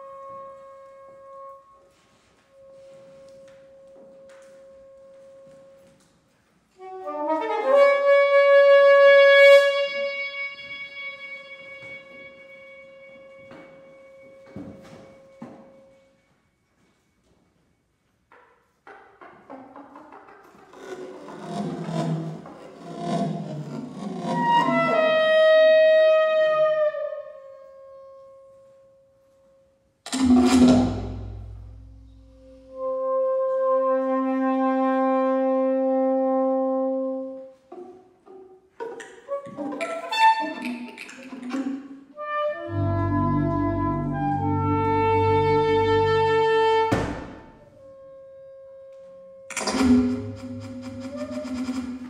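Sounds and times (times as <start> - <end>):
soprano saxophone: 0.0 - 16.0, 23.9 - 29.2, 32.1 - 38.0, 38.9 - 49.8
soprano saxophone with electronics: 6.7 - 14.5, 39.3 - 41.6, 42.2 - 46.9.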